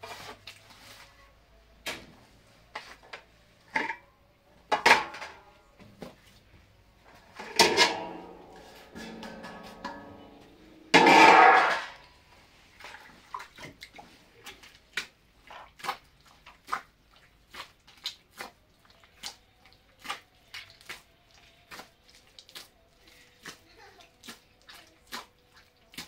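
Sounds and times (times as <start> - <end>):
water splashes and drips: 12.1 - 26.0.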